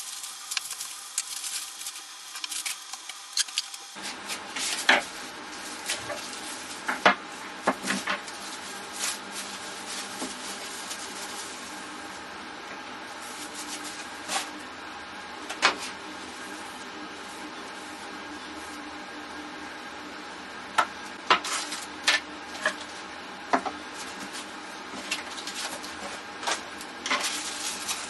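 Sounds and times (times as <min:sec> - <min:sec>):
cling film crinkling: 0:00.0 - 0:12.1, 0:13.1 - 0:14.5, 0:25.1 - 0:28.0.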